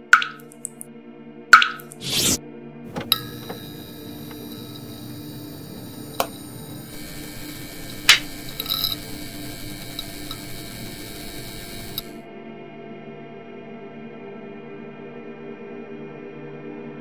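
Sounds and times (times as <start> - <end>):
sharp clicks: 0.0 - 0.8, 1.6 - 12.2
mechanical hum and whir: 1.9 - 12.2.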